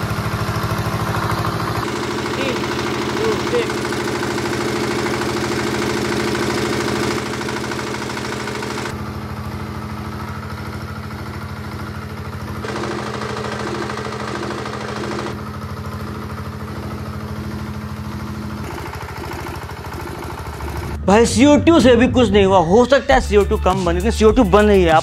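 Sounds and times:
diesel generator engine running: 0:00.0 - 0:25.0.

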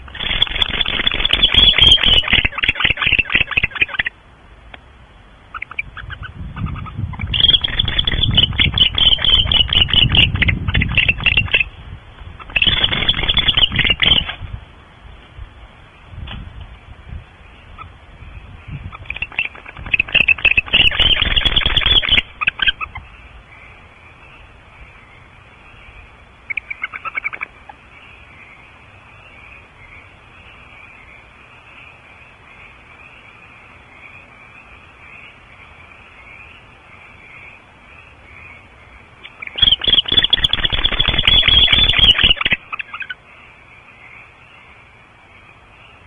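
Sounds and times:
owls rasping calls: 0:00.0 - 0:04.2, 0:05.5 - 0:11.7, 0:12.3 - 0:14.4, 0:18.8 - 0:23.7, 0:26.4 - 0:28.6, 0:38.3 - 0:43.2.

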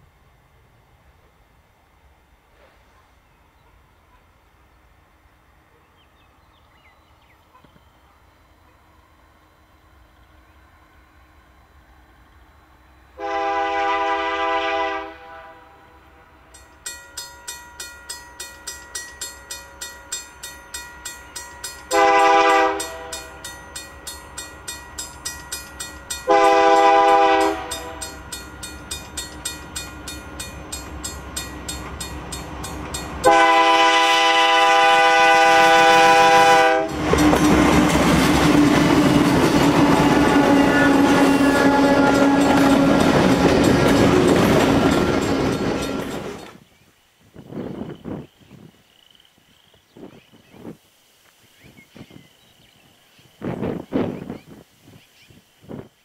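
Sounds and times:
train rumbling past: 0:00.0 - 0:46.7
locomotive horn blasts: 0:13.2 - 0:16.4, 0:21.9 - 0:23.5, 0:26.2 - 0:28.3, 0:33.2 - 0:38.0, 0:39.1 - 0:46.4
bell ringing: 0:16.6 - 0:22.0, 0:22.8 - 0:26.3, 0:27.6 - 0:33.2, 0:41.4 - 0:46.5.

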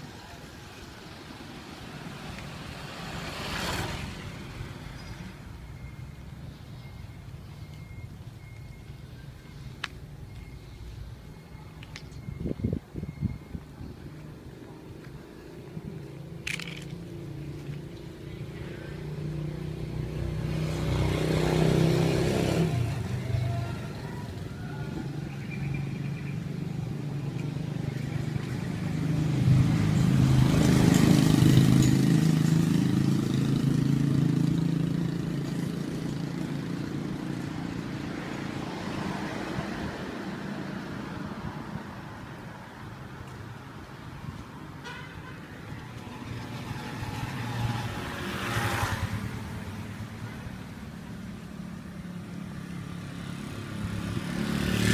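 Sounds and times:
traffic hum: 0:00.0 - 0:54.9
vehicle engine passing: 0:52.8 - 0:54.9.

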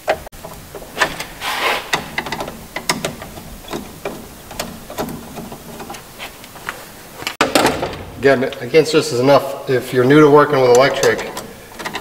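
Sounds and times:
wire strippers clicking and snipping: 0:00.0 - 0:06.6, 0:10.6 - 0:12.0
insulation scraping: 0:00.7 - 0:04.5.

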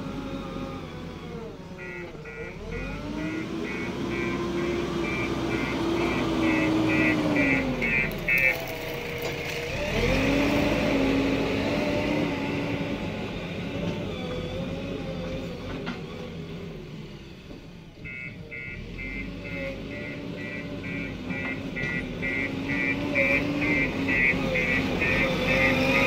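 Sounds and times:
diesel engine running: 0:00.0 - 0:26.0
high reversing beeper: 0:03.2 - 0:08.6.

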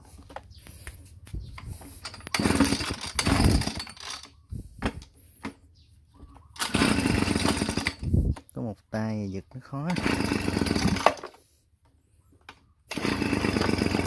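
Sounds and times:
leaf blower engine cranking: 0:01.5 - 0:05.6, 0:06.4 - 0:08.5, 0:09.7 - 0:11.6, 0:12.4 - 0:14.0
recoil starter pulls: 0:01.6 - 0:05.6, 0:06.5 - 0:08.5, 0:09.8 - 0:11.4, 0:12.5 - 0:14.0.

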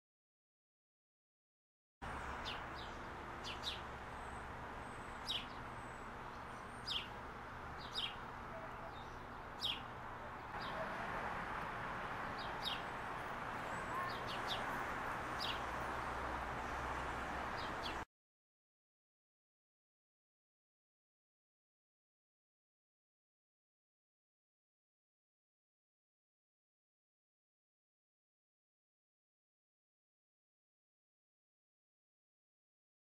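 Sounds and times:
small birds chirping: 0:02.1 - 0:11.0, 0:12.0 - 0:18.0.

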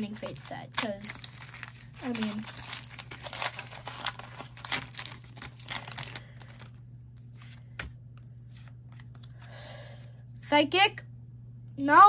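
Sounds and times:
foil wrapper crinkling and tearing: 0:00.0 - 0:07.9
low hum: 0:00.0 - 0:12.0.

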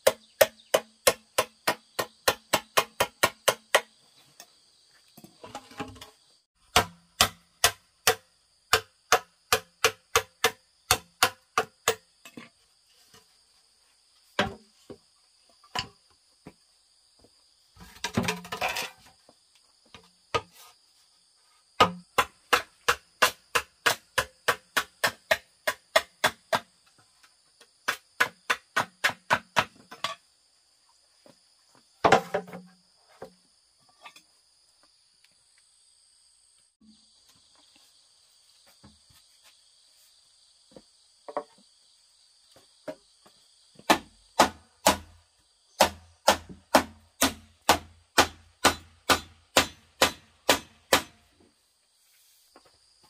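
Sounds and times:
tool striking bamboo: 0:00.0 - 0:04.0, 0:06.6 - 0:12.4, 0:21.8 - 0:26.7, 0:27.8 - 0:30.2, 0:43.9 - 0:45.2, 0:45.8 - 0:51.3
insects droning: 0:00.0 - 0:53.0.

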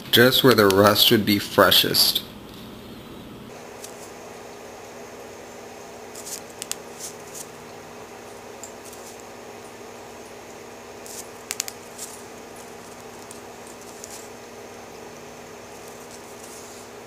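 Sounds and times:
low room hum: 0:00.0 - 0:17.0
brush scratching: 0:06.1 - 0:07.5, 0:11.0 - 0:14.4, 0:15.7 - 0:17.0.

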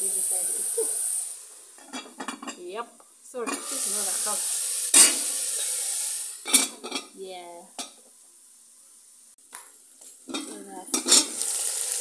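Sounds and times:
beef sizzling in pot: 0:00.0 - 0:12.0
metal pot lid clanking: 0:01.8 - 0:02.7, 0:03.4 - 0:03.8, 0:04.9 - 0:07.1, 0:10.3 - 0:11.4.

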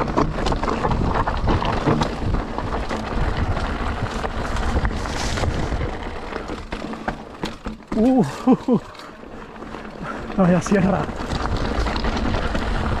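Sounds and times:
wind buffeting microphone: 0:00.0 - 0:06.7, 0:11.0 - 0:13.0
bike rattling over rough trail: 0:00.0 - 0:13.0.

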